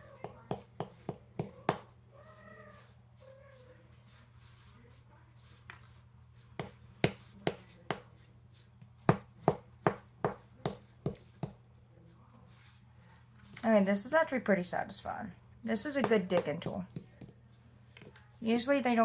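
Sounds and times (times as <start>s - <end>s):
plastic tool tapping chalky block: 9.1s - 11.6s.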